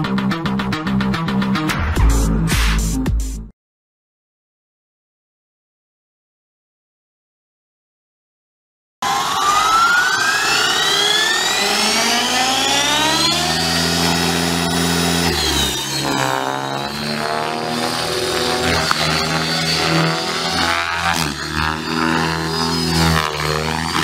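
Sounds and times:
electric helicopter motor whine: 0:09.0 - 0:24.0.

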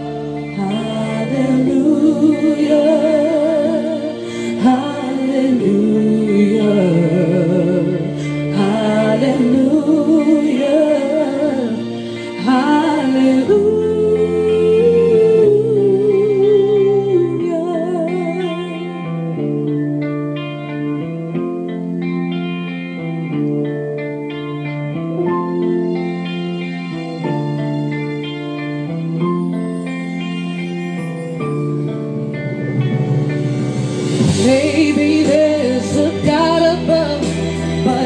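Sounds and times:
woman singing with vibrato: 0:00.0 - 0:19.5, 0:34.2 - 0:38.0
karaoke backing track chords: 0:00.0 - 0:38.0.

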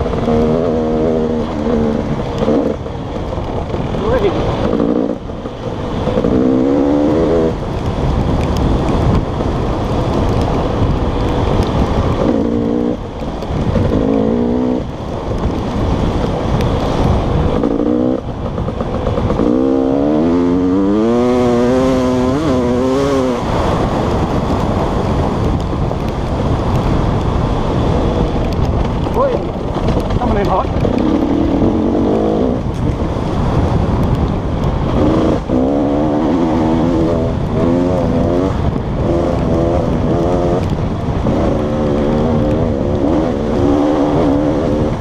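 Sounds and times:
dirt bike engine revving: 0:00.0 - 0:02.9, 0:03.9 - 0:07.7, 0:12.2 - 0:13.0, 0:13.7 - 0:14.9, 0:17.4 - 0:24.1, 0:30.3 - 0:32.7, 0:34.8 - 0:45.0
wind rushing: 0:00.0 - 0:45.0.

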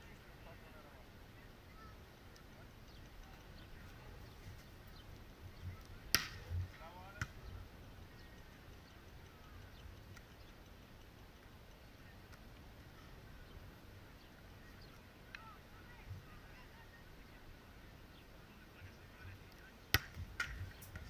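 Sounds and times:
hand striking volleyball: 0:05.7 - 0:07.5, 0:19.9 - 0:21.0.

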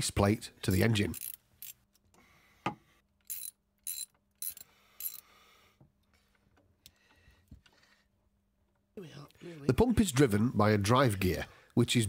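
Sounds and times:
socket ratchet clicking: 0:01.1 - 0:01.8, 0:03.2 - 0:05.2.

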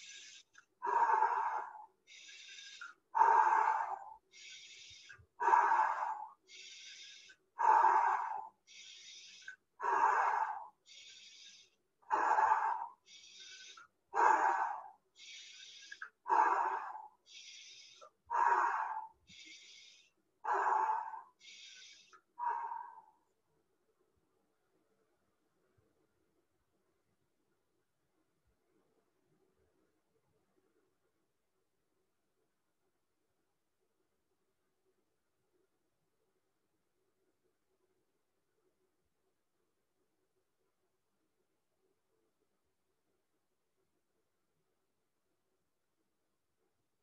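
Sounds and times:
hissy in-breath: 0:00.0 - 0:23.2.

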